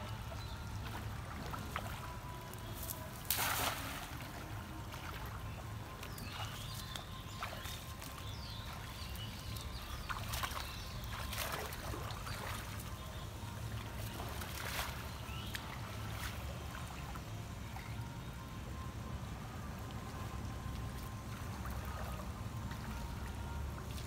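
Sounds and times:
water splashing and sloshing: 0.0 - 24.0
net splashing onto water: 3.1 - 4.4, 10.1 - 12.8.

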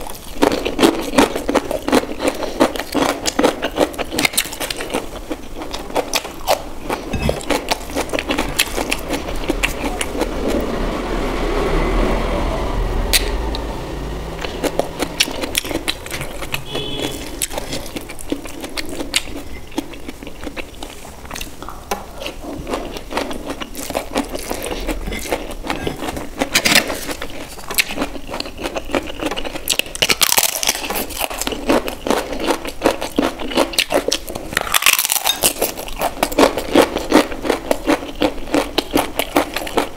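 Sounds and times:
crunchy onion bites: 14.5 - 39.9.

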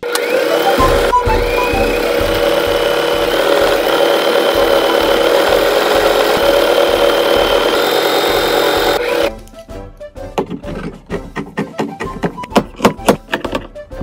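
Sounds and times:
electric sewing machine running: 0.0 - 9.3.

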